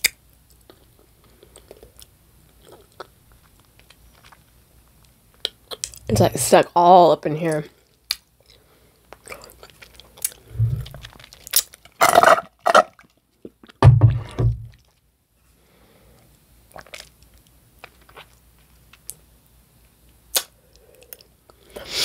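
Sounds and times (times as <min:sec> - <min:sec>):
chewing and mouth sounds: 0:00.0 - 0:06.1, 0:07.9 - 0:13.8, 0:16.7 - 0:19.2
low thuds: 0:10.5 - 0:11.1, 0:13.8 - 0:14.8.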